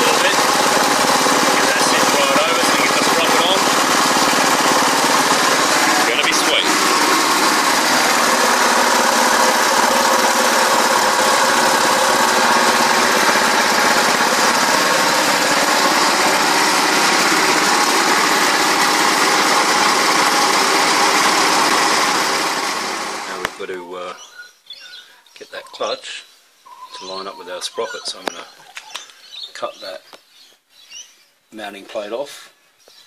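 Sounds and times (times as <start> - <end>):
go-kart engine idling: 0.0 - 23.6.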